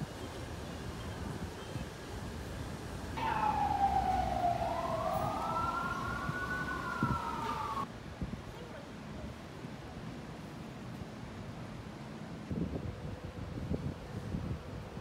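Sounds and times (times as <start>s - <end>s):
street background noise: 0.0s - 15.0s
emergency siren wailing: 3.2s - 7.9s.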